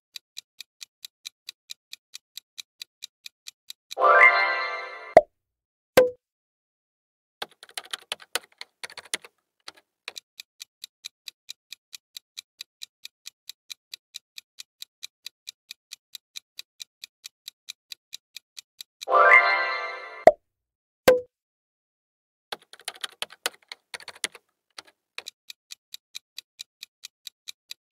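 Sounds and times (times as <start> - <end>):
clock ticking quickly: 0.1 - 4.1, 7.4 - 19.2, 22.5 - 27.9.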